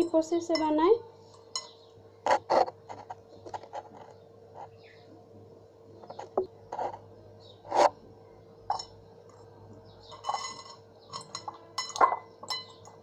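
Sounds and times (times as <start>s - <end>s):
cutlery scraping glass bowl: 10.1s - 12.9s
cutlery clinking on glass: 10.1s - 13.0s.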